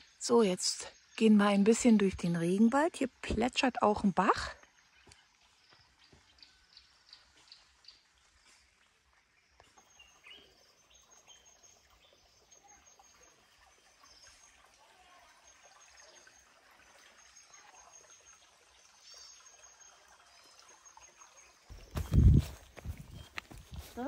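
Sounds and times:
stream trickling over stones: 0.0s - 24.0s.

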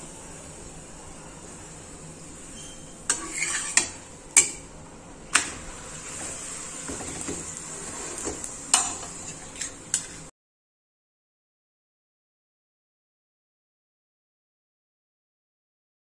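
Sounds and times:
flatbread sizzling on griddle: 0.0s - 4.7s, 5.4s - 10.3s
spatula scraping griddle: 2.6s - 4.7s, 5.4s - 10.3s.

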